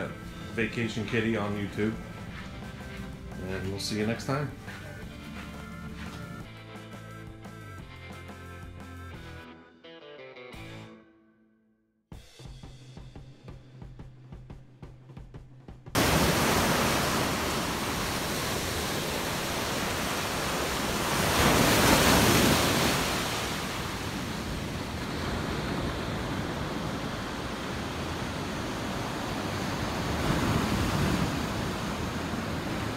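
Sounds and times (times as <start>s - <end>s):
ocean waves breaking on beach: 16.0s - 32.9s
wind rumbling on microphone: 16.0s - 32.9s.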